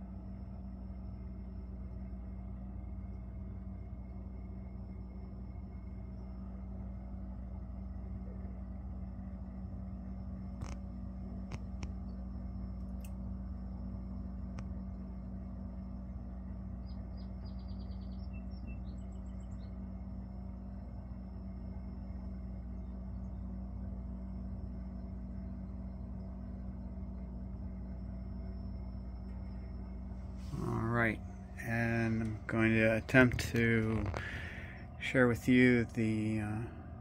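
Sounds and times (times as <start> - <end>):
low machine hum: 0.0 - 37.0
faint sharp clicks: 12.8 - 13.2.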